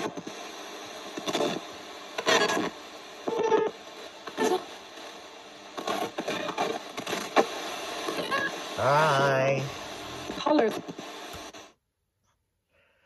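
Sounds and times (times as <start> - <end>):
radio static hiss: 0.0 - 11.8
snatches of radio broadcast: 0.0 - 11.8.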